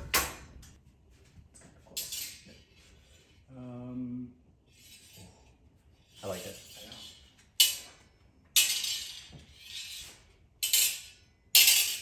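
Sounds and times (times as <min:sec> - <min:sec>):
low voice humming: 0:03.5 - 0:04.4
steel blades clinking: 0:06.2 - 0:08.0, 0:10.6 - 0:12.0.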